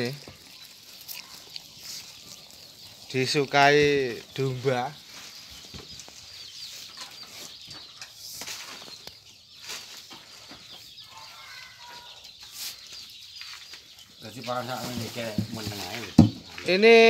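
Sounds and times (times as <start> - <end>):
sheep crunching feed: 0.0 - 6.3.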